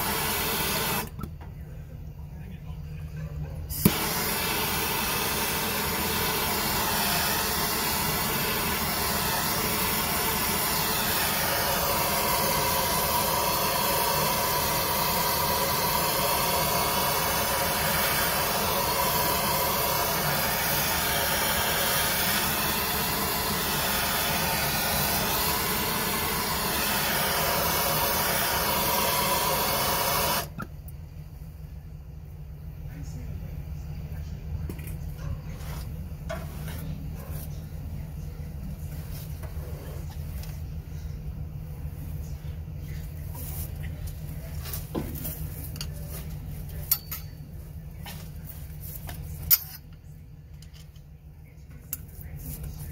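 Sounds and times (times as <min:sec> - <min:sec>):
gas torch hissing: 0:00.0 - 0:01.3, 0:03.7 - 0:30.7
gas torch lighting pop: 0:03.7 - 0:30.7.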